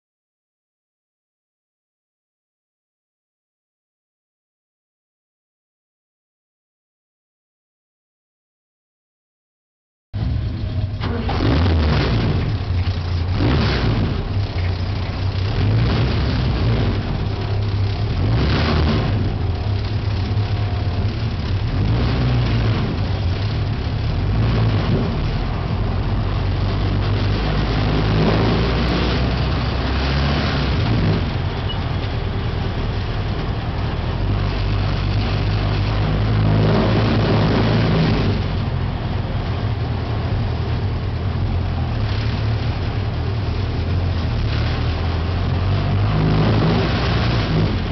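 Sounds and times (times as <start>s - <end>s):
race car engines running: 10.2s - 47.9s.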